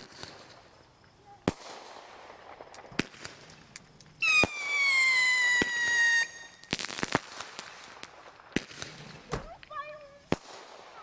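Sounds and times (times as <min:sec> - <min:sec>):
firework crackling and pops: 0:00.0 - 0:11.0
firework whistle falling in pitch: 0:04.2 - 0:06.7.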